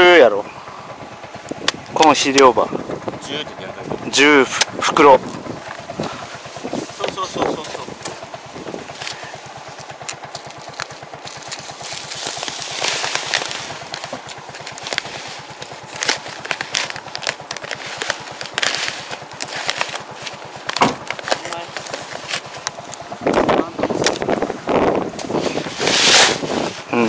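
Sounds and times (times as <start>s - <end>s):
engine idling: 0.0s - 27.0s
paper sack crinkling: 5.3s - 24.3s, 25.2s - 27.0s
scissors snipping paper: 11.5s - 23.0s.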